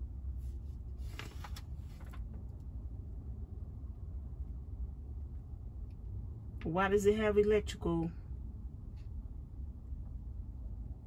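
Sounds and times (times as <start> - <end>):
steady low rumble: 0.0 - 11.0
paper booklet rustling: 0.4 - 2.6.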